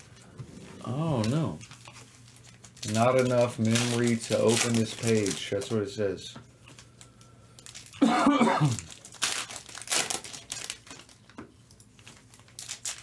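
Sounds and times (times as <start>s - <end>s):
foil wrappers crinkling: 0.0s - 13.0s.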